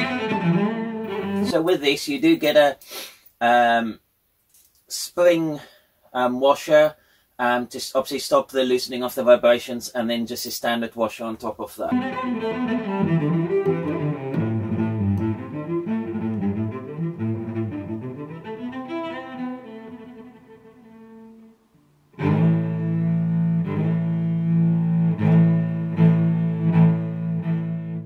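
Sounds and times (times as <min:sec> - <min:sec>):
background music: 0:00.0 - 0:01.6, 0:11.9 - 0:20.8.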